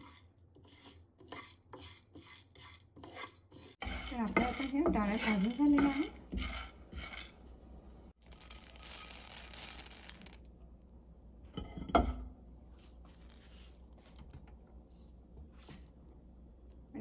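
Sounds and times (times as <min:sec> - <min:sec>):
lentils pouring into a bowl: 0:08.2 - 0:10.4, 0:13.1 - 0:14.2.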